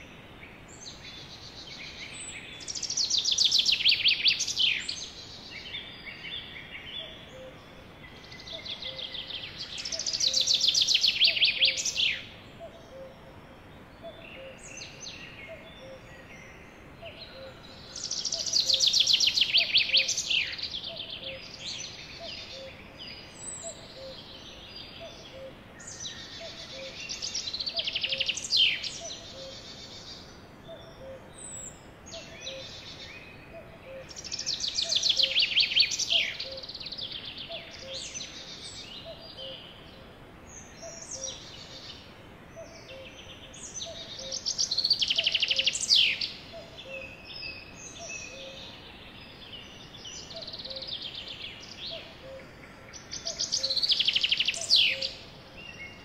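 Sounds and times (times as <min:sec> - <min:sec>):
songbird trilling: 0:02.0 - 0:05.1, 0:08.3 - 0:13.2, 0:17.0 - 0:39.8, 0:42.6 - 0:48.9, 0:49.6 - 0:56.0.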